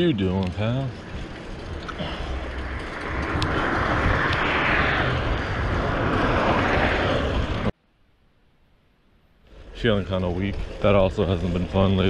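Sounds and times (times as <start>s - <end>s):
bicycle tyre road noise: 0.0s - 7.8s, 9.1s - 12.0s
wind rushing over microphone: 0.0s - 7.8s.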